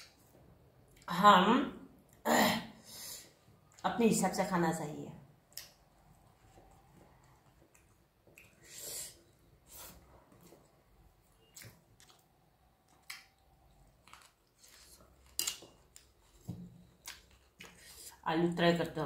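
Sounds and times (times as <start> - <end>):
person chewing: 5.5 - 18.2.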